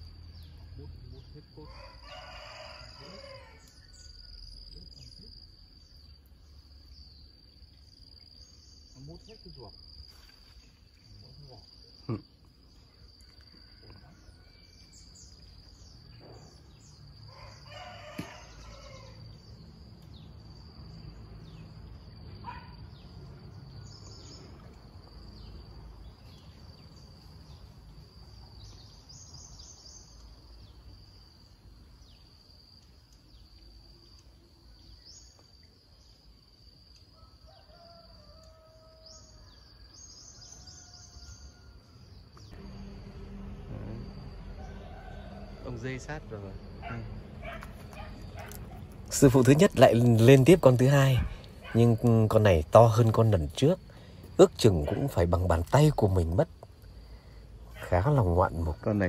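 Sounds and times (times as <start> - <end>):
rooster crowing: 1.4 - 4.7, 13.3 - 15.3, 16.1 - 19.6, 37.1 - 49.7
low rumble: 42.4 - 50.1
high-pitched insect drone: 42.4 - 52.6.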